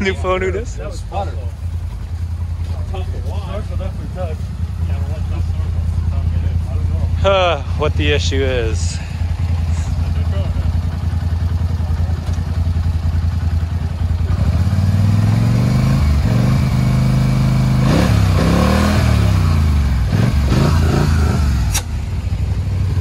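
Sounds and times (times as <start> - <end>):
vehicle engines idling and revving: 0.0 - 23.0
sharp click: 21.7 - 22.0.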